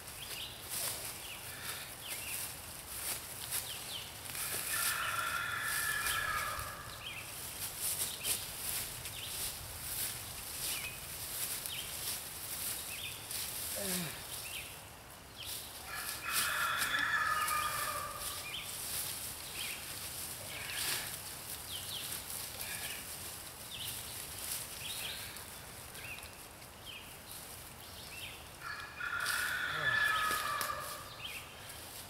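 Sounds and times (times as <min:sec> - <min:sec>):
large fowl calling: 0:15.9 - 0:18.4, 0:28.6 - 0:31.0.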